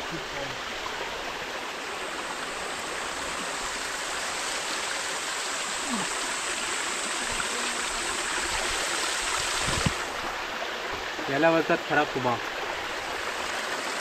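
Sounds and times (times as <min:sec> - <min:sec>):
stream water flowing: 0:00.0 - 0:14.0.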